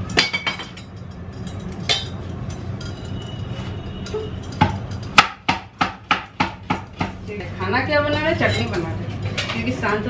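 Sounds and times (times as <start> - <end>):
utensils clinking: 0.0 - 5.4.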